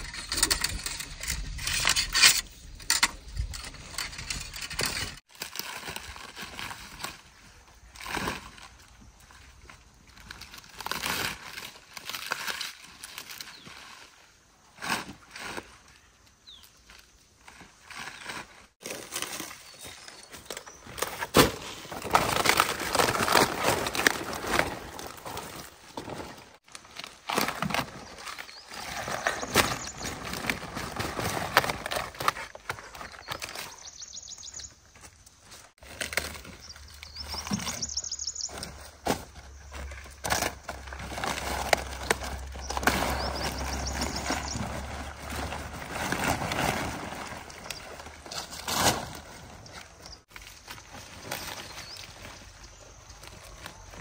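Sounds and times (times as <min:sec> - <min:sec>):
birds chirping: 0:27.8 - 0:31.2, 0:31.9 - 0:48.4, 0:49.2 - 0:54.0
cabbage leaves rustling and snapping: 0:38.5 - 0:54.0.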